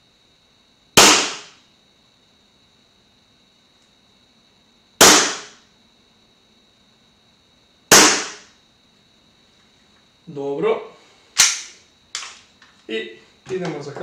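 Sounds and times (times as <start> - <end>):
airsoft pistol shots: 1.0 - 1.6, 5.0 - 5.6, 7.9 - 8.5, 11.4 - 11.8.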